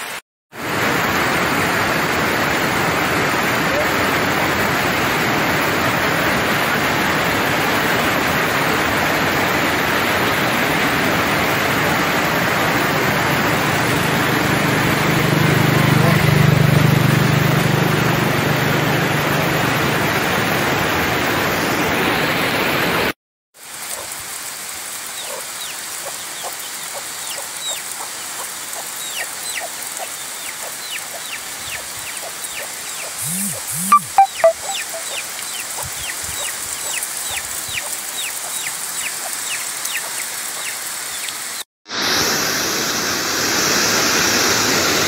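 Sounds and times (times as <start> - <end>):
water rushing over rocks: 0.0 - 15.4
high bird chirps: 29.0 - 40.8.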